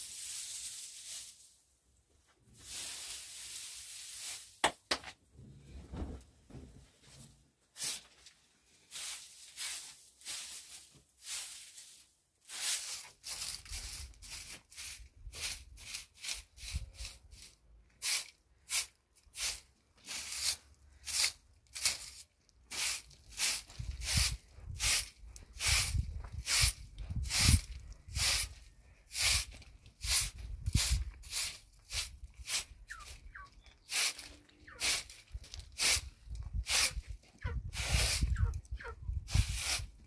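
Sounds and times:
dry grass rustling and tearing: 0.0s - 1.4s, 8.9s - 17.5s.

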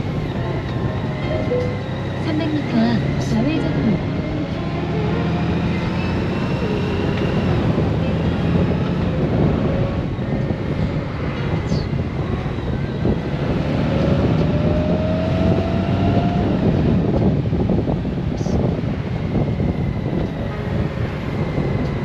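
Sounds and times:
wind and tyre noise: 0.0s - 22.0s
faint rising tone: 0.3s - 7.7s.

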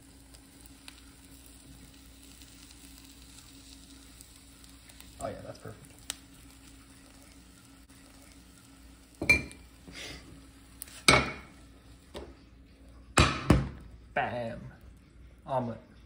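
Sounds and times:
frying pan and spatula clattering: 11.0s - 11.6s.

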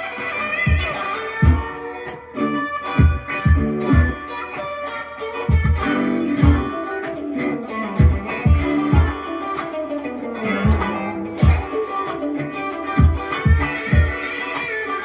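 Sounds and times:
electric guitar chicken-pickin': 0.0s - 15.0s
steady low beat: 0.5s - 14.5s.

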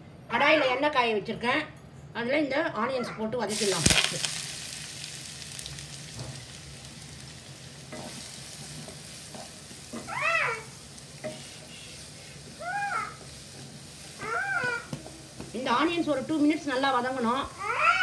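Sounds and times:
onions sizzling in oil: 3.5s - 18.0s
spatula scraping pan: 7.9s - 16.2s.

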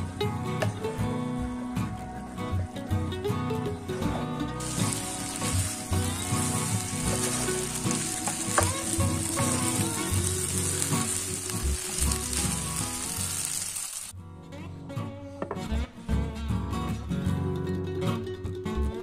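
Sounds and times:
soft background music: 0.0s - 13.5s
food sizzling in frying pan: 4.6s - 14.2s.

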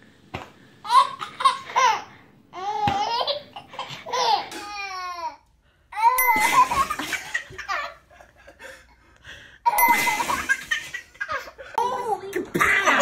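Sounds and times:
baby laughing: 0.9s - 5.4s.

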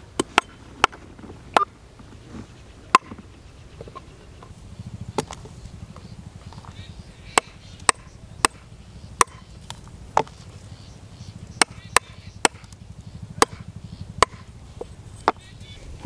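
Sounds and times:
knife chopping on wooden block: 9.2s - 9.5s, 13.4s - 13.6s, 14.2s - 14.5s.

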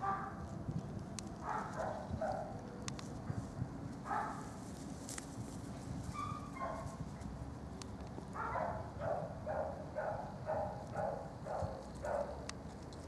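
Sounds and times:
dog barking: 0.0s - 0.4s, 1.4s - 2.6s, 4.1s - 4.5s, 6.2s - 6.9s, 8.4s - 12.4s
outdoor background noise: 0.0s - 13.0s.

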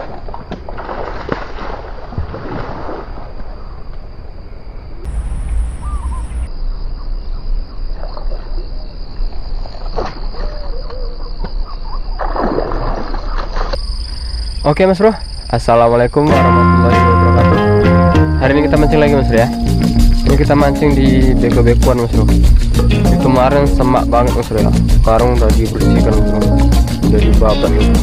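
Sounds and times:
high insect drone: 3.6s - 7.8s, 13.7s - 17.3s, 18.0s - 27.9s
short chirping calls: 5.1s - 6.5s.

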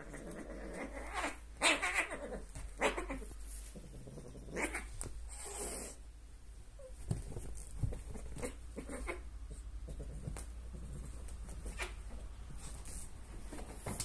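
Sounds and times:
cats scuffling on sofa: 6.8s - 8.8s, 10.2s - 14.0s
paw pats and thumps: 6.9s - 9.0s, 9.9s - 14.0s.

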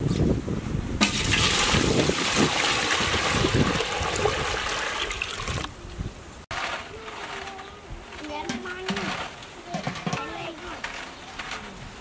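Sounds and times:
water pouring into metal pot: 1.0s - 5.7s.

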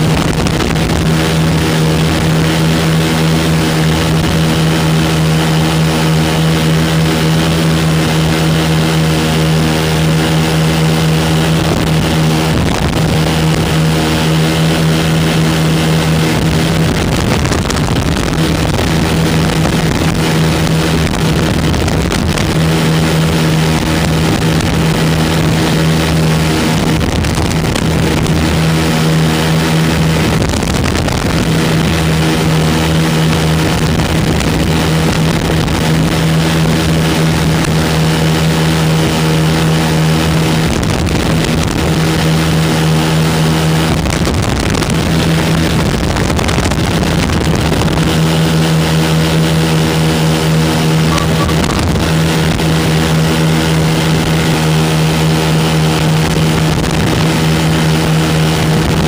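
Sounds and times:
aircraft engines droning: 48.2s - 56.6s.

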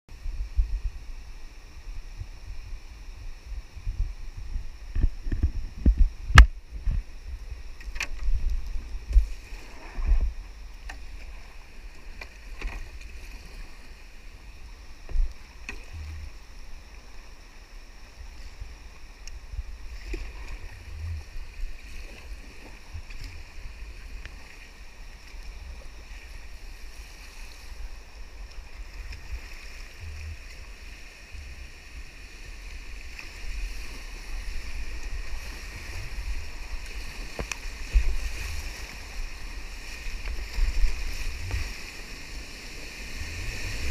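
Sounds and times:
paddle strokes: 5.0s - 43.9s
river water rushing: 27.7s - 43.9s.

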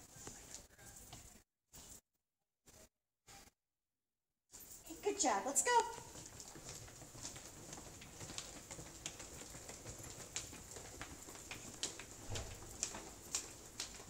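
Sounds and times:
footsteps on tiled floor: 0.0s - 2.0s, 4.5s - 14.0s.

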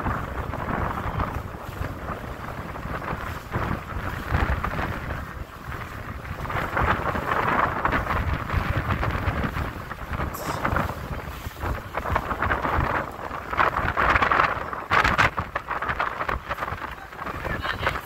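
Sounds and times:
wind buffeting microphone: 0.0s - 18.0s.

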